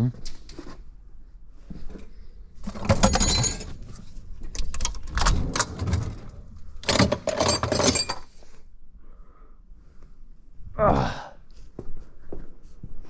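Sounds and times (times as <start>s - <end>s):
metal hand tools clattering: 2.7s - 3.8s, 6.8s - 8.3s.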